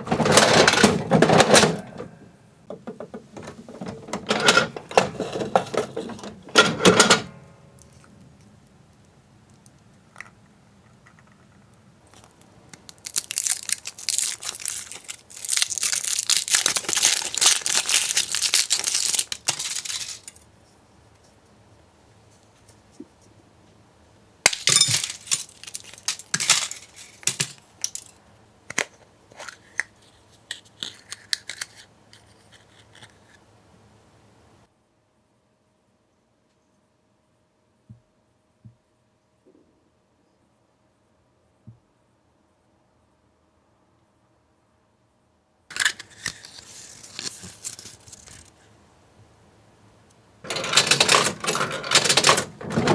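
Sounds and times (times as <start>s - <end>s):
chocolate shell cracking: 12.1s - 20.4s, 30.5s - 31.9s
foil wrapper crinkling: 12.1s - 20.4s, 24.5s - 28.1s, 45.7s - 48.5s
plastic capsule clicking open: 30.5s - 31.8s.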